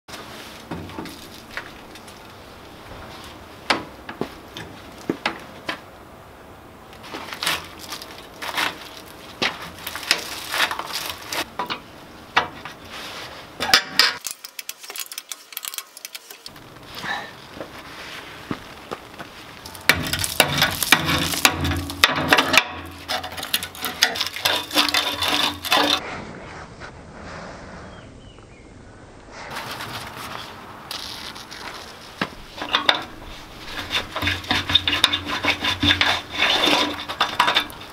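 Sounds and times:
hand tools clicking and knocking metal: 7.6 - 12.8, 13.6 - 16.6, 19.6 - 26.0, 32.6 - 37.9.

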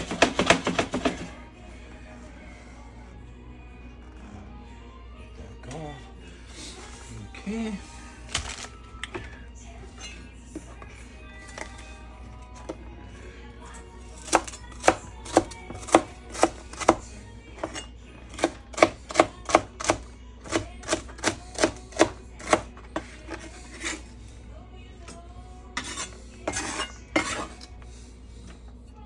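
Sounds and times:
rough knife strokes: 23.0 - 24.2, 25.8 - 27.8.

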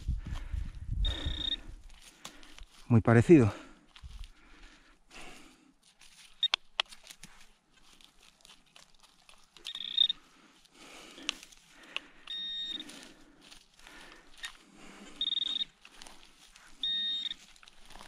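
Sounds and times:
metal detector beeps: 1.0 - 1.6, 6.4 - 6.6, 9.6 - 10.2, 12.2 - 12.9, 15.2 - 15.8, 16.8 - 17.5.

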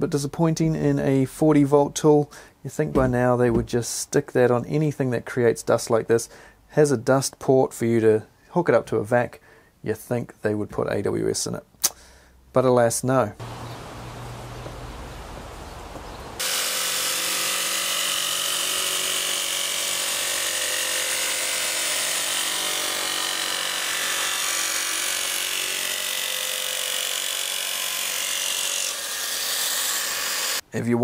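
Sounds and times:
jigsaw cutting through thin panel: 16.4 - 30.6.

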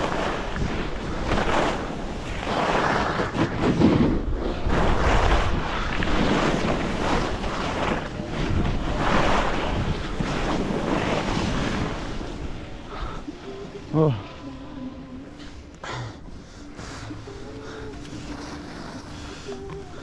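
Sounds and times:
wind rushing over microphone: 0.0 - 13.0
skis scraping through snow: 0.0 - 14.4, 16.6 - 20.0.

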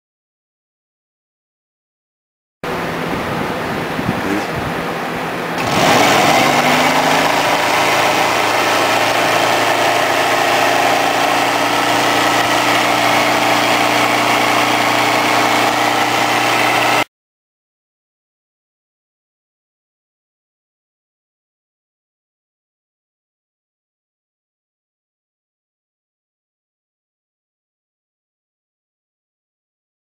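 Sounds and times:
electric motor whine and hum: 2.7 - 17.1.

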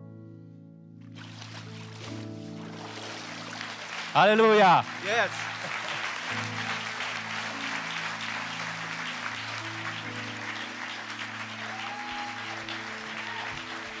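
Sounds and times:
congregation applauding: 1.2 - 14.0.

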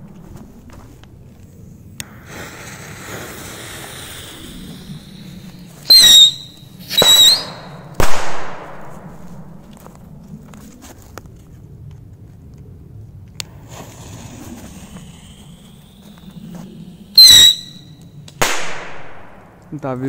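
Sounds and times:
whistling rockets launching: 2.0 - 9.6, 13.5 - 19.6.

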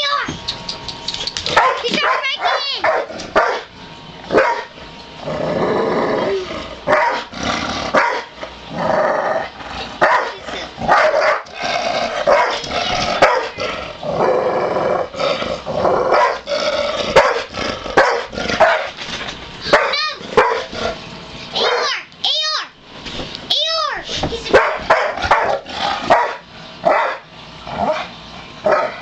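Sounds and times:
dog barking loudly: 1.5 - 3.7, 4.3 - 4.8, 6.9 - 7.3, 8.0 - 8.3, 10.0 - 11.5, 12.3 - 13.6, 16.1 - 16.4, 17.2 - 18.9, 19.7 - 20.7, 21.6 - 22.0, 24.5 - 27.2, 28.7 - 29.0.

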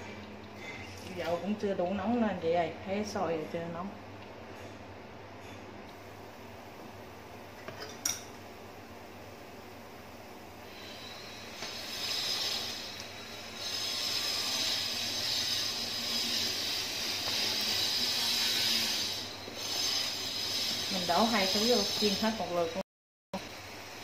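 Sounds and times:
food sizzling in oil: 10.2 - 22.8, 23.4 - 24.0.

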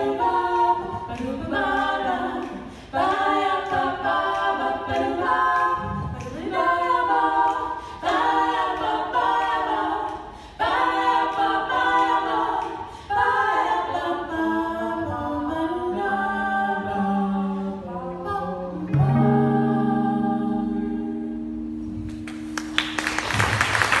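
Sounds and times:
women singing in harmony: 0.0 - 21.7
applause: 22.2 - 24.0.

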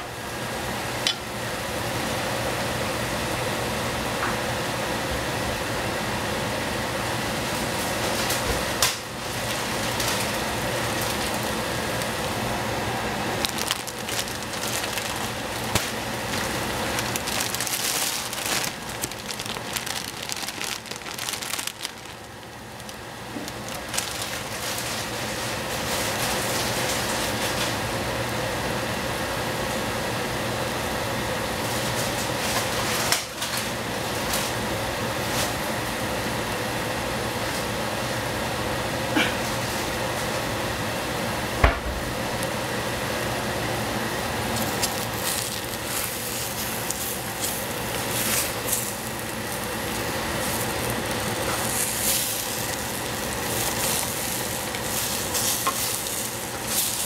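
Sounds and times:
steady hum: 0.0 - 31.5, 35.8 - 57.0
plastic bag crinkling: 9.2 - 27.7, 44.4 - 57.0
vegetables sizzling in a saucepan: 44.5 - 57.0.

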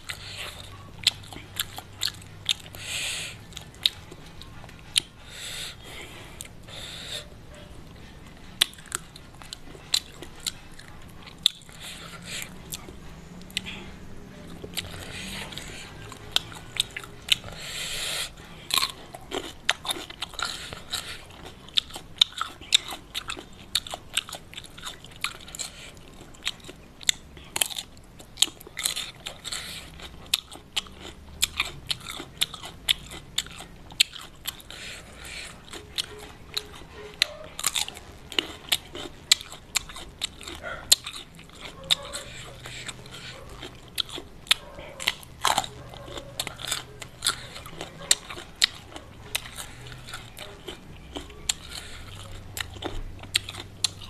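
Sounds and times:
wet chewing clicks: 0.0 - 54.0
crunching cucumber bites: 14.6 - 54.0.

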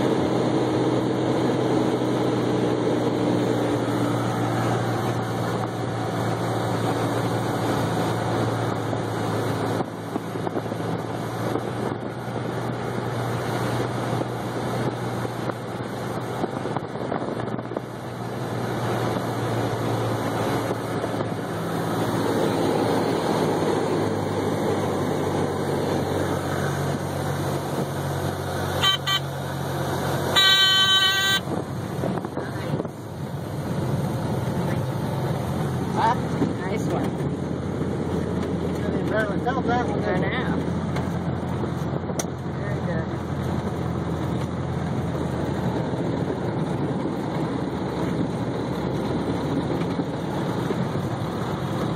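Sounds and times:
light aircraft engine and propeller: 0.0 - 51.9
stall warning horn: 28.8 - 29.4, 30.3 - 31.6.

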